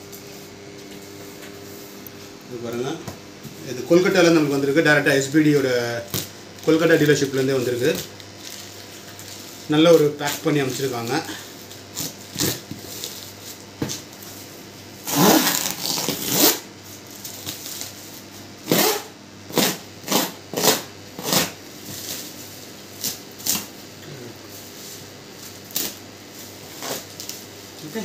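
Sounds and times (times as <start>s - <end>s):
plastic sack tearing: 11.9s - 13.2s, 15.0s - 17.9s.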